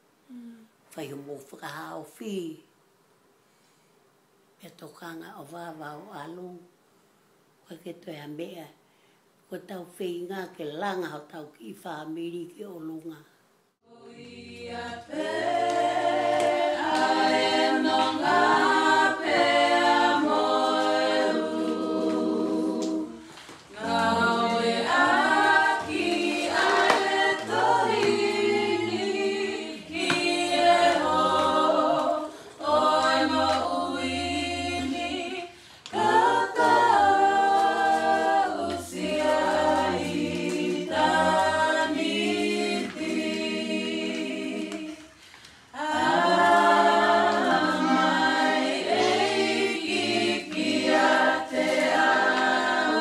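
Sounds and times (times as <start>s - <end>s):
a cappella group singing: 13.8s - 53.0s.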